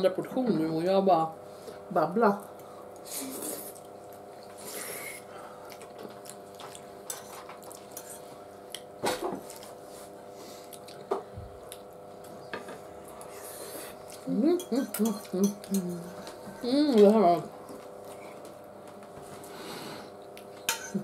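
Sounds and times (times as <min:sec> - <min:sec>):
faint steady hum: 0:00.0 - 0:21.0
forks scraping on plates: 0:20.7 - 0:21.0.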